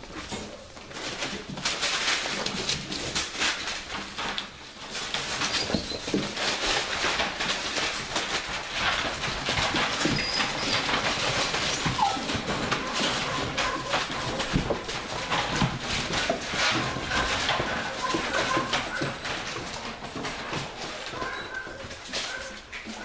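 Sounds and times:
puppy paws pattering on plastic: 0.0 - 23.0
puppies squeaking: 5.4 - 6.2, 9.9 - 15.6, 16.8 - 19.6, 21.1 - 23.0.

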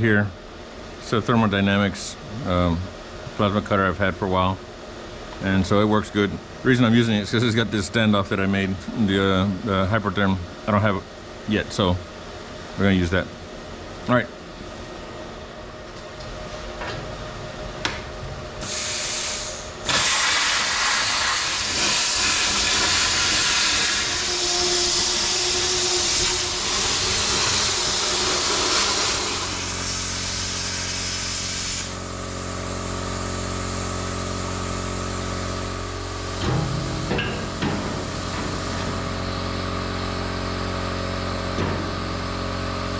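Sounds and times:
steady machine hum: 0.0 - 42.9
plasma cutter arc hissing: 18.6 - 39.5.

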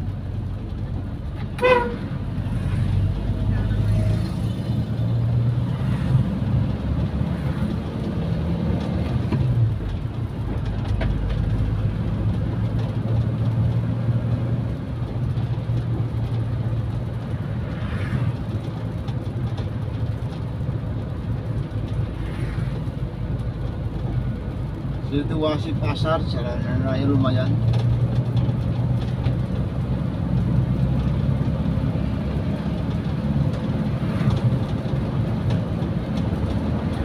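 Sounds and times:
car engine and road drone: 0.0 - 37.0.

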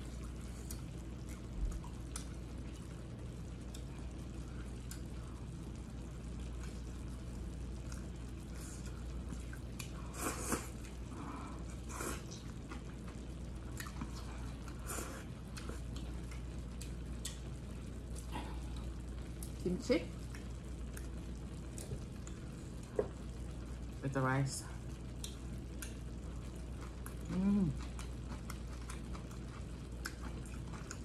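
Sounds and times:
wet chewing and slurping noodles: 0.0 - 2.9, 7.8 - 17.5, 25.2 - 31.0
steady low hum: 0.0 - 31.0.

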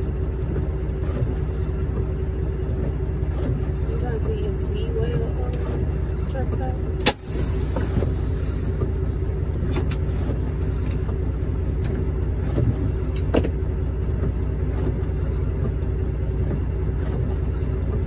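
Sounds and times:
diesel truck engine running: 0.0 - 18.0
clicks and knocks in cab: 11.8 - 15.8.

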